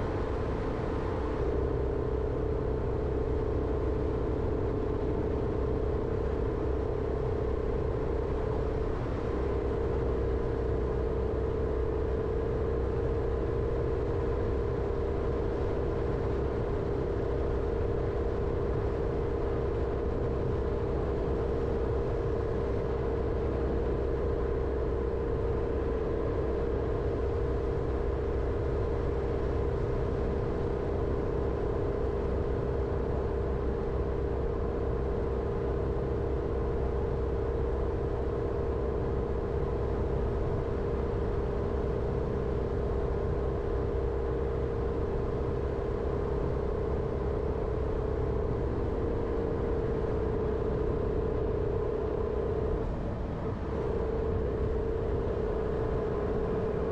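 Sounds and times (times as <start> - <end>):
car engine and road rumble: 0.0 - 56.9.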